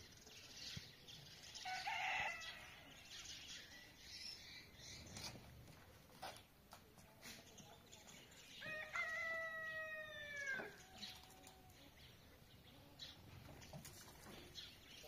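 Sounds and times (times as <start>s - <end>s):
rooster crowing: 8.6s - 11.0s.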